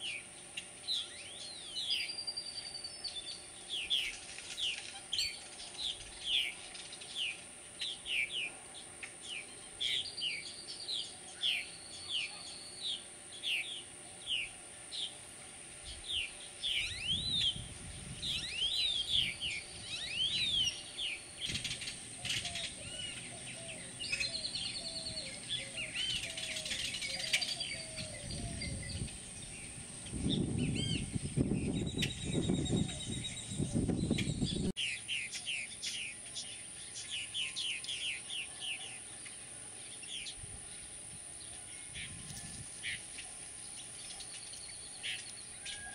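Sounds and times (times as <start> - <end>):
purple martins chirping: 15.9 - 38.3.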